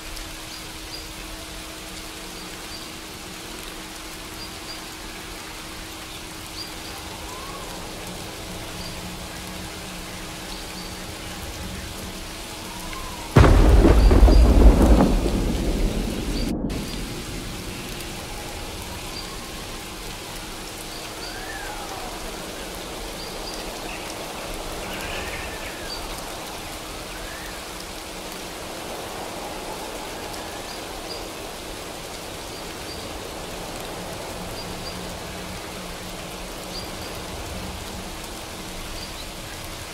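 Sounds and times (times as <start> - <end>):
steady rain falling: 0.0 - 39.9
thunderclap rumbling: 13.3 - 19.8.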